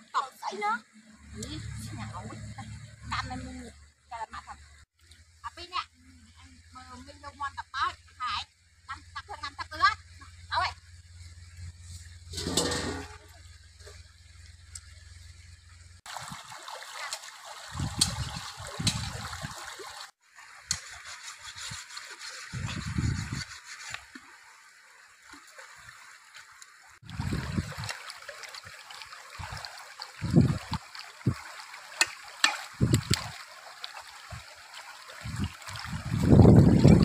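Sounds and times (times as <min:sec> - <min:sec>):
stream running over rocks: 0:00.0 - 0:37.0
splashing water: 0:16.0 - 0:37.0.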